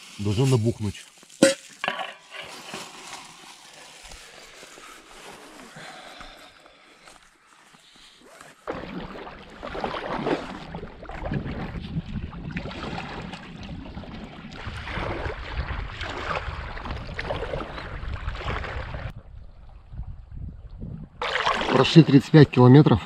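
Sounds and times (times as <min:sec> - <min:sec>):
paddle strokes splashing: 0:08.1 - 0:18.9, 0:21.2 - 0:21.9
wind buffeting microphone: 0:11.0 - 0:21.2.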